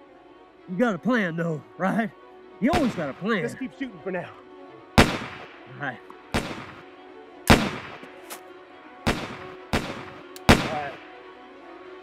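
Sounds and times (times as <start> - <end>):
gunshots with echo: 2.7 - 3.2, 5.0 - 5.7, 6.3 - 6.9, 7.5 - 8.2, 9.1 - 11.0.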